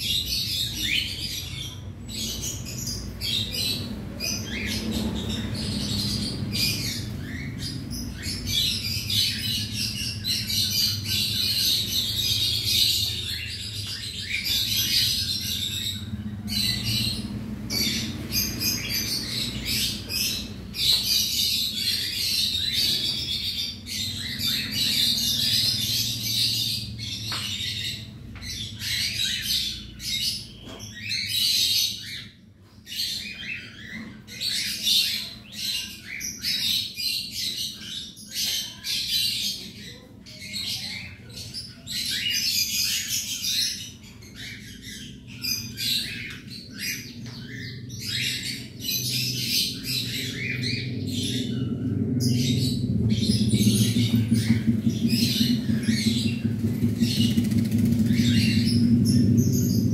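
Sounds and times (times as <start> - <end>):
cockatiels chattering and squawking: 0.0 - 59.9
steady low hum: 43.9 - 59.9.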